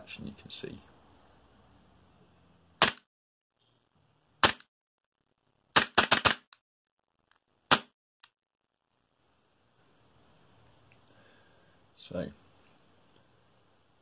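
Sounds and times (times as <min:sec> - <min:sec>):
airsoft pistol shots: 0:02.8 - 0:03.1, 0:04.4 - 0:04.7, 0:07.7 - 0:07.9.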